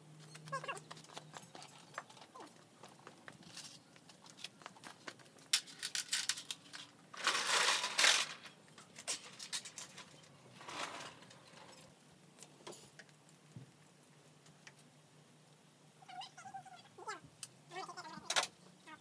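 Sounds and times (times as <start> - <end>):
foil insulation rustling: 3.2 - 11.8.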